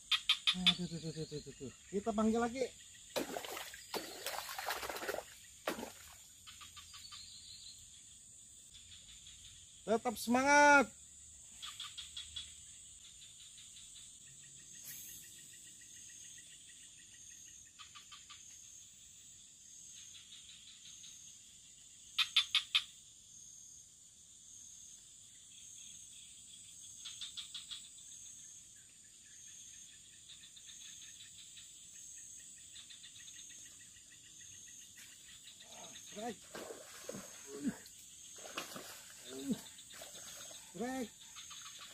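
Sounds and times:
frogs calling in clicking pulses: 0:00.0 - 0:18.8, 0:19.8 - 0:23.2, 0:24.8 - 0:41.9.

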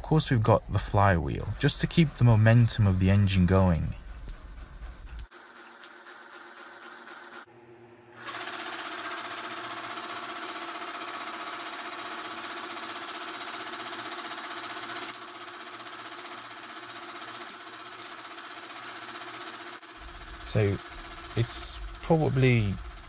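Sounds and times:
electric air pump buzzing: 0:00.8 - 0:07.5, 0:08.1 - 0:23.0
sharp clicks: 0:01.4 - 0:06.0.

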